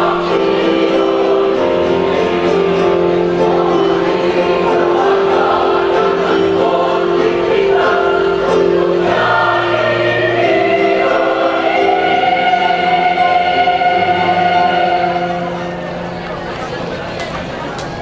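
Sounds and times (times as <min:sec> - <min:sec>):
choir singing a march: 0:00.0 - 0:16.1.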